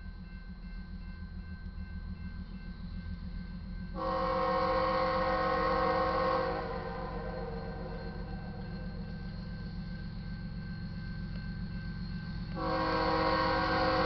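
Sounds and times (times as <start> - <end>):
locomotive air horn chord: 4.0 - 9.1, 12.5 - 14.0.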